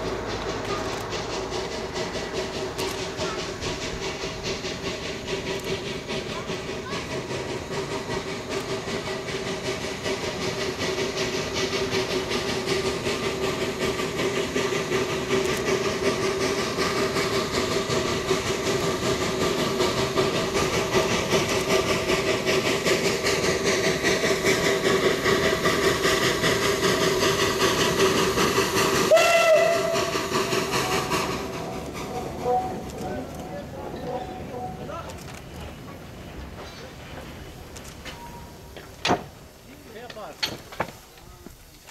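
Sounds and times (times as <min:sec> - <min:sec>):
steam locomotive exhaust chuffs: 0:00.0 - 0:41.9
steam whistle blast: 0:29.0 - 0:30.2.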